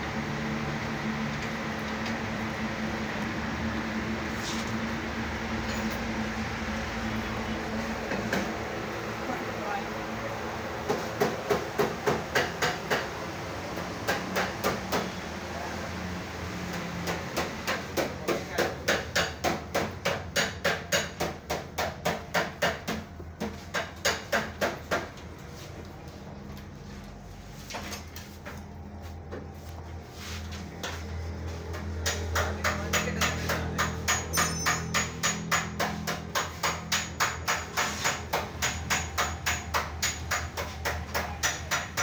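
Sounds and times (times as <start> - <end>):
sharp knocking: 31.8 - 42.0.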